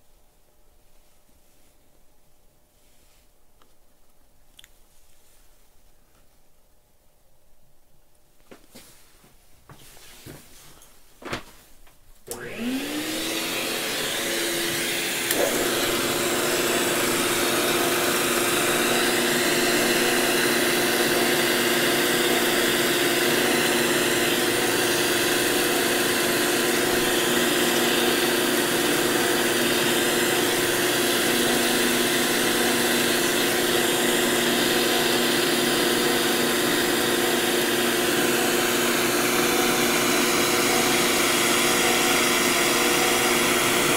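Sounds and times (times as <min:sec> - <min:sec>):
shop vacuum motor whine: 0:12.3 - 0:43.9.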